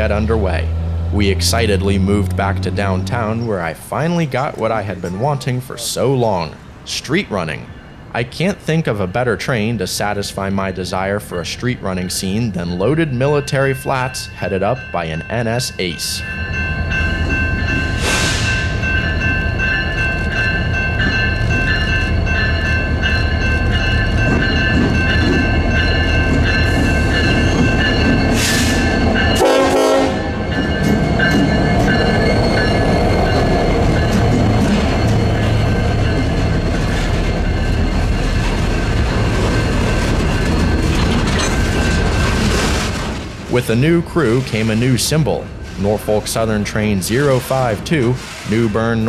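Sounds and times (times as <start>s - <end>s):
locomotive engine rumble: 0.0s - 15.6s, 16.2s - 49.0s
train horn sounding: 28.4s - 30.6s.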